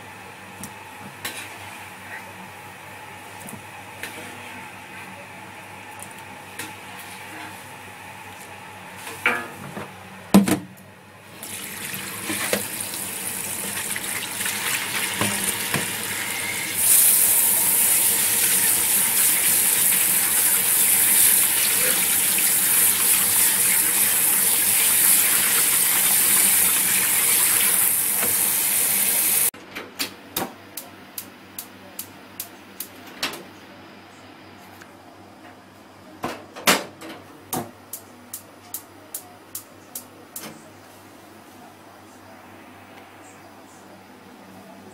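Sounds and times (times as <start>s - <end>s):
tap water running into sink: 11.4s - 16.2s, 17.6s - 29.5s.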